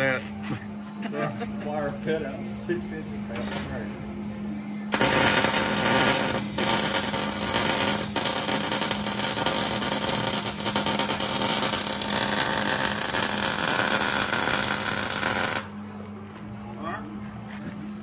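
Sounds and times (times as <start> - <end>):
electric arc welding crackle: 4.9 - 17.1.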